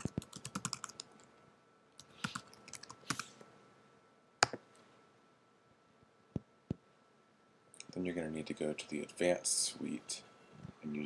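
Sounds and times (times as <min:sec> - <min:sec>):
computer keyboard typing: 0:00.0 - 0:01.1, 0:02.0 - 0:03.3.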